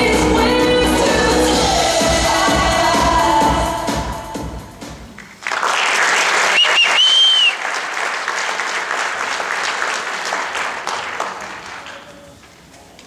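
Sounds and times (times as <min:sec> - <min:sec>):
audience applauding and cheering: 0:05.2 - 0:12.5
whistle: 0:06.5 - 0:07.6.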